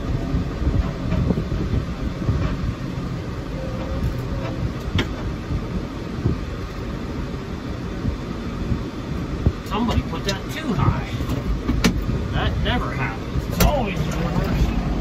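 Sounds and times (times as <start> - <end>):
rattling and metal clanks: 0.0 - 5.5
tractor engine running: 0.0 - 15.0.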